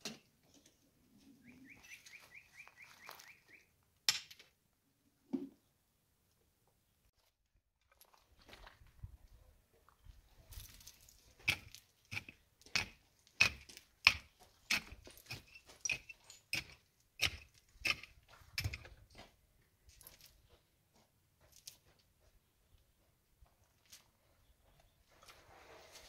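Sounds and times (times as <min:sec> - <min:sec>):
footsteps crunching on stony ground: 0:01.7 - 0:03.6, 0:07.2 - 0:16.4, 0:17.6 - 0:26.0.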